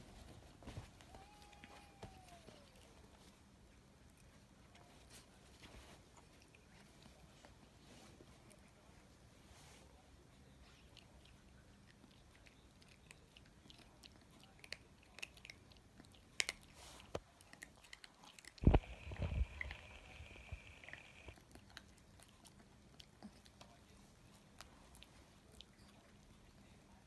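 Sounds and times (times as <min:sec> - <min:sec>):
puppy chewing food: 0:10.4 - 0:27.0.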